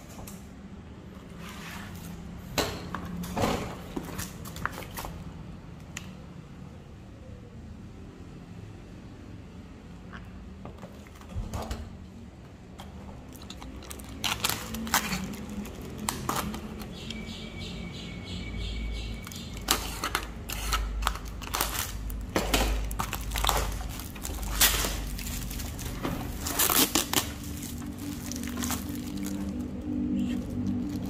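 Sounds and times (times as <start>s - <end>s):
plastic shrink-wrap crinkling: 13.2s - 17.1s, 19.2s - 31.0s.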